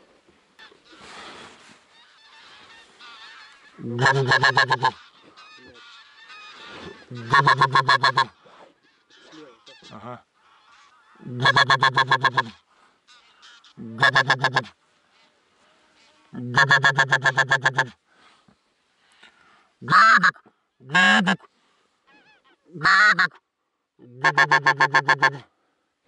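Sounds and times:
goose honking: 0:01.9 - 0:14.7, 0:16.4 - 0:17.9, 0:19.8 - 0:21.5, 0:22.1 - 0:23.4, 0:24.2 - 0:25.4.

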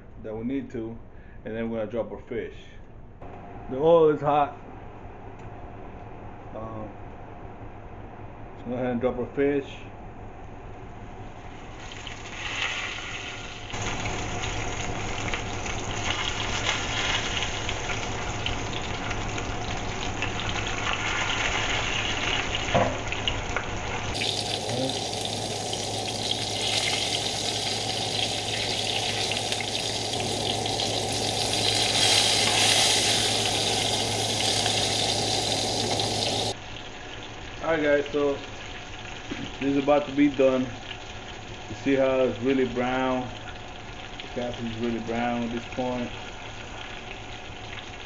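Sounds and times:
fish frying in oil: 0:11.4 - 0:48.0.

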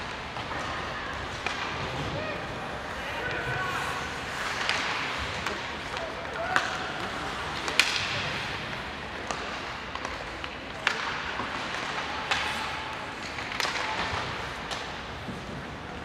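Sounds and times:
hockey sticks and puck cracking: 0:00.0 - 0:16.0
rink crowd hubbub: 0:00.0 - 0:16.0.

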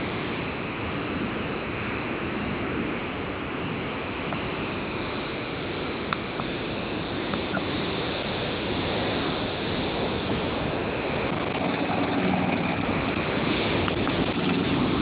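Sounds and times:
wind on microphone: 0:00.0 - 0:15.0
ride-on lawn mower running: 0:04.7 - 0:15.0.

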